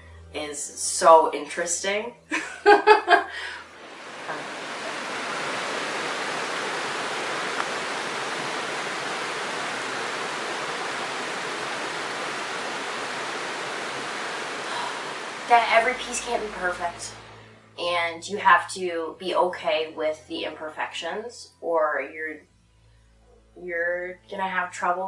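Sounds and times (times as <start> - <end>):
stream tumbling over rocks: 3.8 - 17.3.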